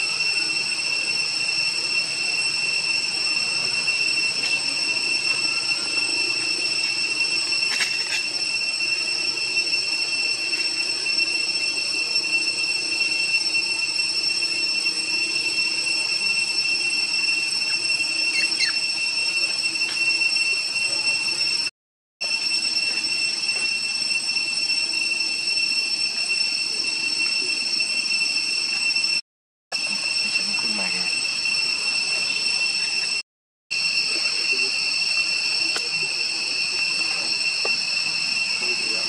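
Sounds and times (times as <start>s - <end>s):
insects droning: 0.0s - 21.6s.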